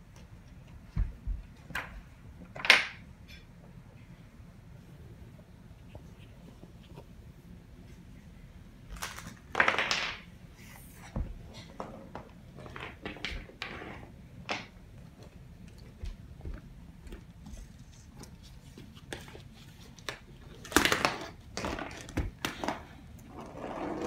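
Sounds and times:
plastic wheels rattling on wooden floor: 20.6s - 24.0s.

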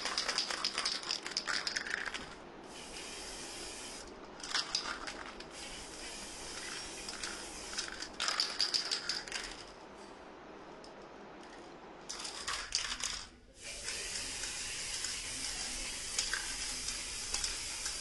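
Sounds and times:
spray can rattling clicks: 0.0s - 2.4s, 4.0s - 5.6s, 6.5s - 9.6s, 12.1s - 18.0s
spray paint can hissing: 0.0s - 9.6s, 13.6s - 18.0s.

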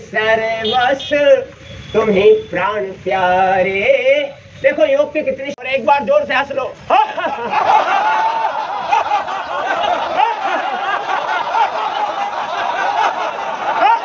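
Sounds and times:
crowd laughing together: 6.9s - 14.0s.

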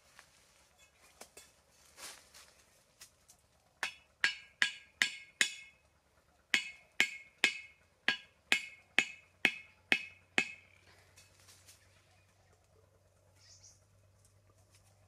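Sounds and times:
machete knocking on wooden stake: 3.8s - 5.7s, 6.6s - 10.6s.

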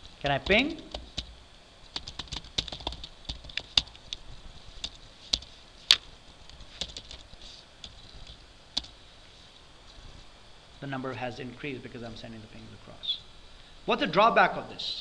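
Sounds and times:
computer keyboard typing: 0.3s - 1.3s, 1.9s - 4.2s, 4.8s - 5.5s, 6.4s - 9.0s.

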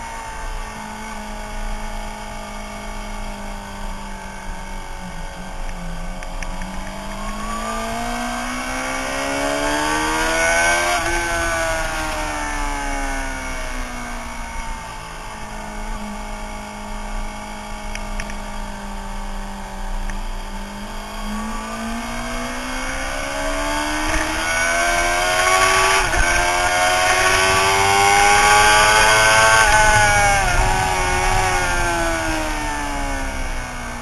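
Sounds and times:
motorcycle engine revving: 0.0s - 34.0s
wind rush: 25.2s - 33.9s.

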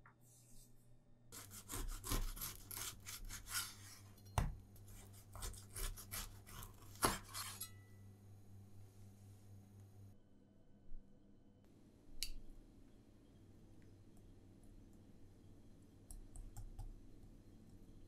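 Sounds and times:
knife sawing through bread crust: 1.4s - 4.1s, 4.9s - 7.7s.

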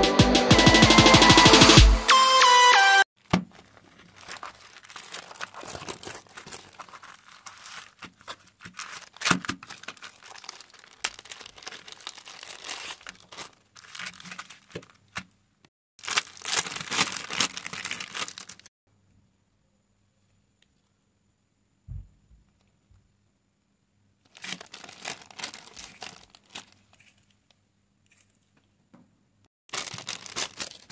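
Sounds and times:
plastic packaging crinkling: 3.2s - 15.4s, 16.0s - 18.7s, 24.3s - 28.5s, 29.7s - 30.9s.

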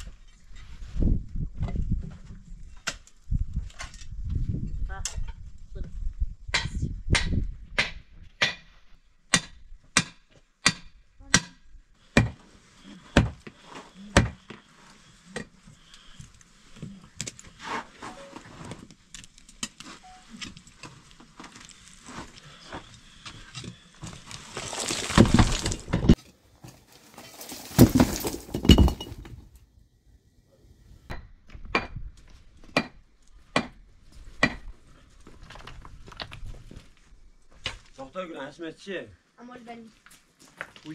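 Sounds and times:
chipping and scraping: 17.2s - 29.3s
rock breaking and crumbling: 24.0s - 26.2s, 27.0s - 29.5s.

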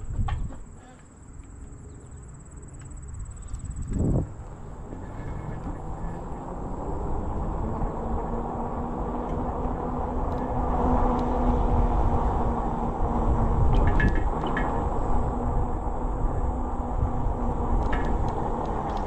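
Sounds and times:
wind on microphone: 0.0s - 0.6s, 3.1s - 19.0s
tyres rumbling: 0.0s - 19.0s.

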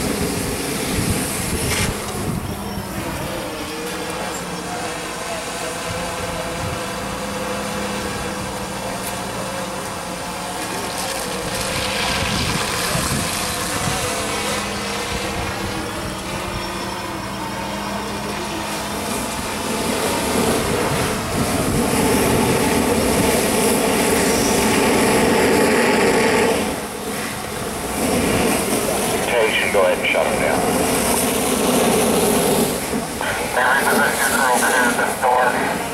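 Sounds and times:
pump engine hum: 0.0s - 35.9s
water rushing from hose: 10.2s - 15.8s, 18.7s - 35.9s.

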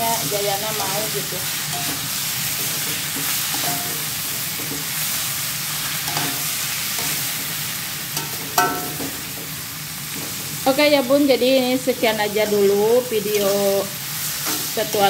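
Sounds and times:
food sizzling in a wok: 0.0s - 15.0s
metal spatula scraping a pan: 0.1s - 7.6s, 14.2s - 15.0s.

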